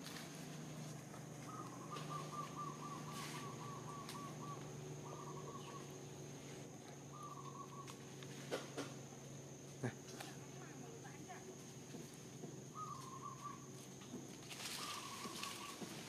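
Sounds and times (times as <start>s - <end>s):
bird calling: 0.0s - 8.9s, 12.7s - 16.0s.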